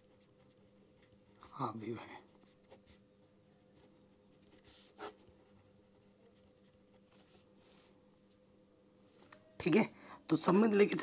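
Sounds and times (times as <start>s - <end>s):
faint electrical hum: 0.0s - 11.0s
pen strokes on paper: 3.8s - 8.0s.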